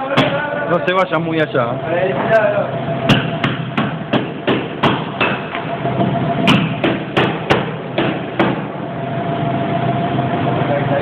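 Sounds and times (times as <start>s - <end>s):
hammer striking a chisel: 3.1s - 5.6s, 6.5s - 8.6s.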